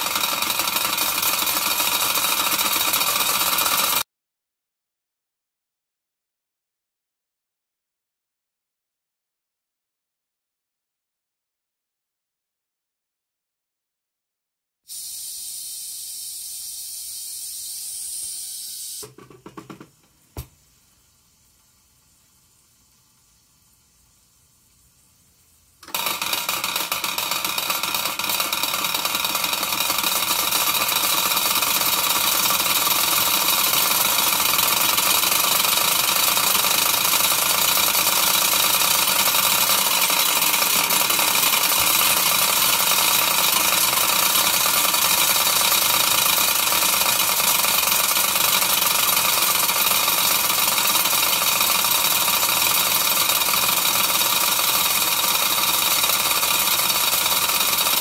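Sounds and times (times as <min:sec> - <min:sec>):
mechanical rattle: 0:00.0 - 0:04.0, 0:25.8 - 0:58.0
model steam engine running: 0:00.0 - 0:04.0, 0:25.8 - 0:58.0
steam hiss: 0:14.9 - 0:19.1.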